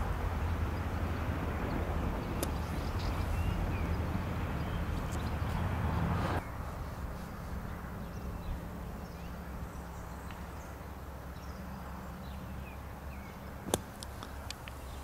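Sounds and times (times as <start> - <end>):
low outdoor hum: 0.0 - 15.0
golf club hitting sand: 13.7 - 14.6.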